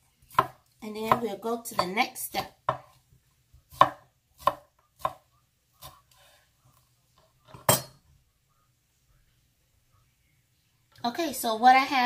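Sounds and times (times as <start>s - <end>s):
knife slicing peppers: 3.6s - 5.2s.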